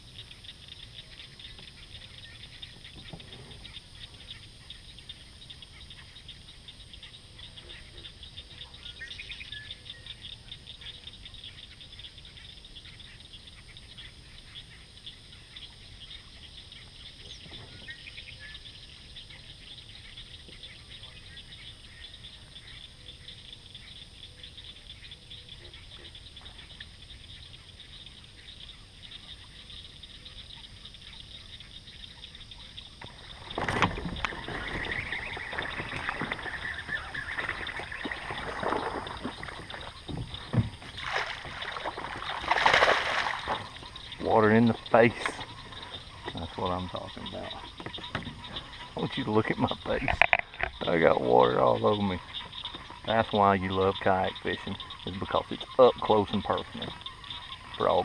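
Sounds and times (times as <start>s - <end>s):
chorus of fast ticking calls: 31.6s - 58.0s
fish splashing at surface: 33.1s - 43.9s.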